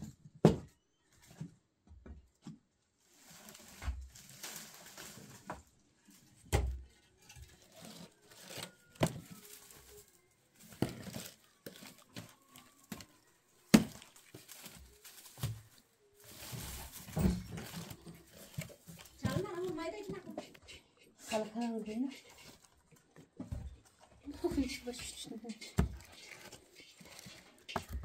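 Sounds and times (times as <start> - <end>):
dry brushwood rustling and crackling: 3.0 - 20.7, 21.3 - 28.0.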